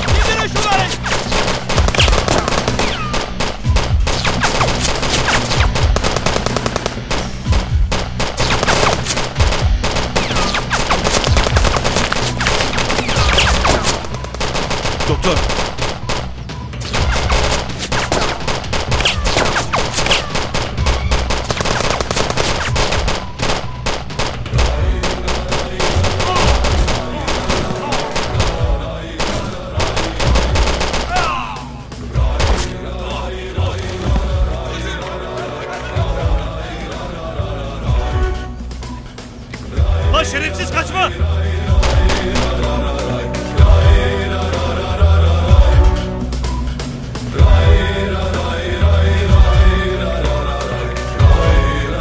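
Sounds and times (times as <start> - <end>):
rapid gunfire: 0.0 - 31.7, 32.3 - 32.8, 41.7 - 42.7.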